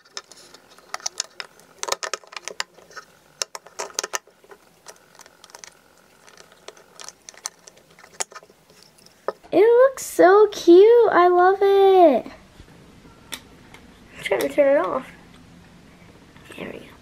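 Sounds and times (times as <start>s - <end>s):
batteries clicking against plastic: 0.0s - 9.0s.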